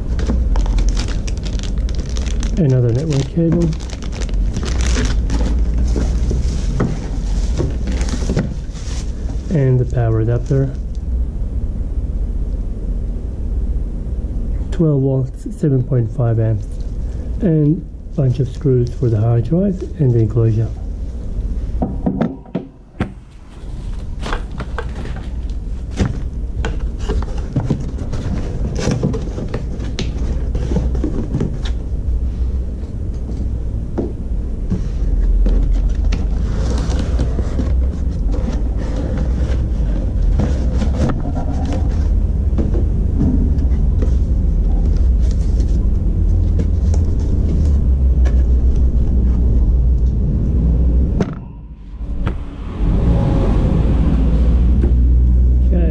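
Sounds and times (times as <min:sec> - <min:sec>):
cardboard scraping and rustling: 0:00.0 - 0:10.8, 0:23.3 - 0:31.8, 0:34.7 - 0:49.5
steady low rumble: 0:00.0 - 0:55.9.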